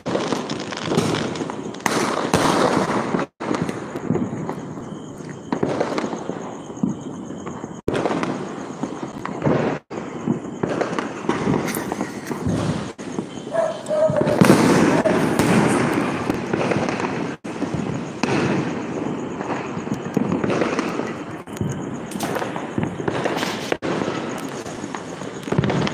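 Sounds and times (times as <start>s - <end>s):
firecrackers and fireworks bangs: 0.0s - 25.9s.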